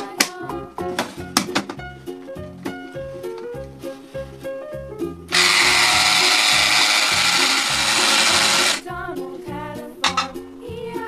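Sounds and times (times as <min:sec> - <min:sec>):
children's background music: 0:00.0 - 0:11.0
toy blender whirring: 0:05.3 - 0:08.8.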